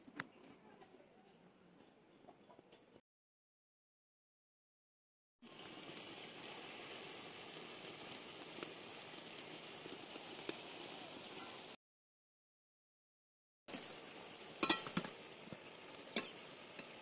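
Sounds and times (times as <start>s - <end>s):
food deep-frying in hot oil: 5.4s - 11.8s, 13.7s - 17.0s
metal spatula clicking on pan: 14.6s - 15.1s.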